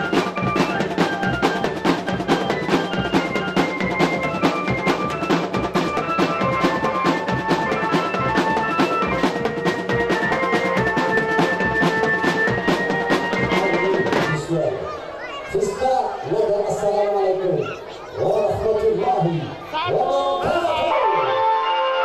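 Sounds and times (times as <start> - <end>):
melody of held notes: 0.0 - 14.4
marching drums: 0.0 - 14.6.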